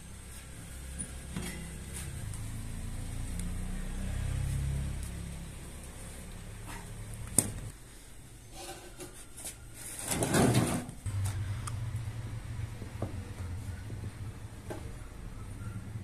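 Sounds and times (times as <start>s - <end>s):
rustling scrape: 8.5s - 10.9s.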